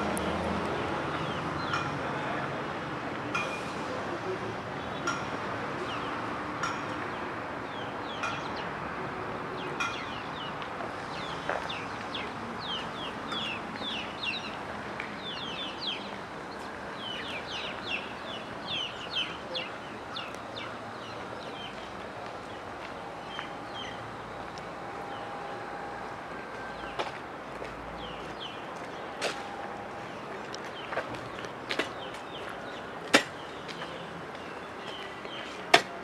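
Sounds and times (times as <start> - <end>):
outdoor background noise: 0.0 - 36.0
birds chirping: 15.2 - 24.4, 28.0 - 35.6.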